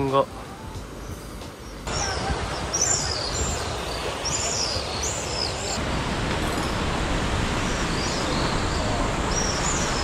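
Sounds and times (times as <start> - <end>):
wind: 0.0 - 10.0
swallows chirping: 1.1 - 5.8.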